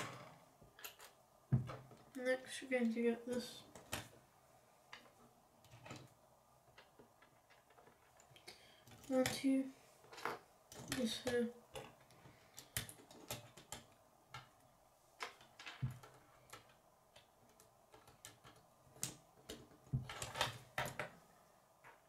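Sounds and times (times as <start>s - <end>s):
plastic pieces clicking together: 10.7s - 14.5s, 15.2s - 21.1s.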